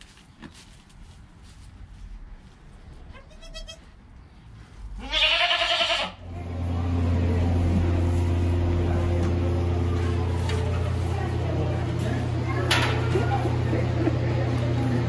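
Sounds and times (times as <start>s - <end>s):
low mechanical hum: 0.0s - 15.0s
goat bleating: 3.1s - 3.9s, 5.0s - 6.2s.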